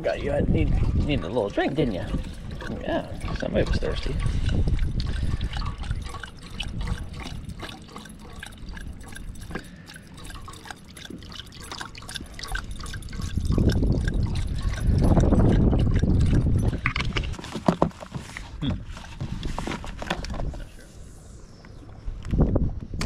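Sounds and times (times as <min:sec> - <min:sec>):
dog lapping water: 0:00.0 - 0:17.5
water poured from bottle: 0:00.8 - 0:17.4.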